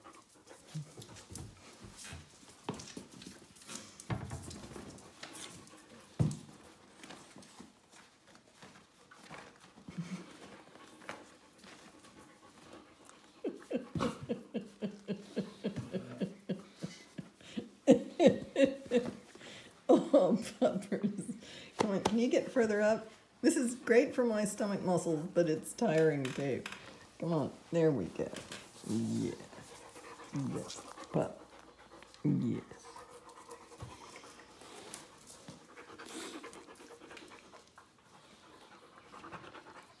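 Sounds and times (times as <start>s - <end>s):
dog panting: 0.0s - 4.1s, 4.8s - 19.9s, 28.7s - 40.0s
woman laughing: 13.4s - 19.2s.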